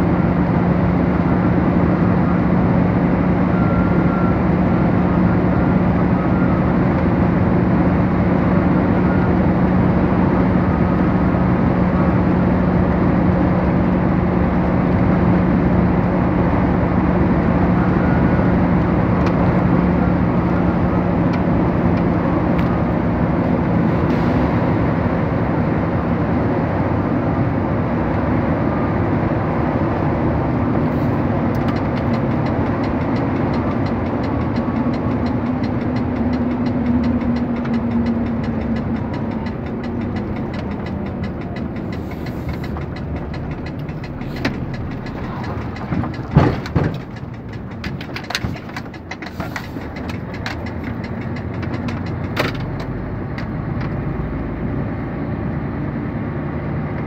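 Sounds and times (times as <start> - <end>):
engine and road noise: 0.0 - 57.0
knocks and rattles: 31.6 - 53.5.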